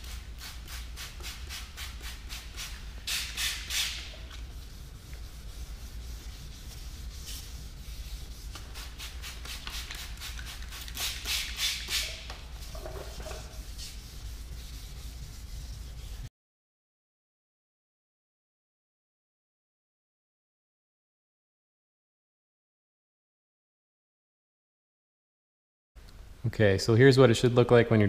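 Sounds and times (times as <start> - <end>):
sandpaper rubbing on plastic: 0.1 - 16.3.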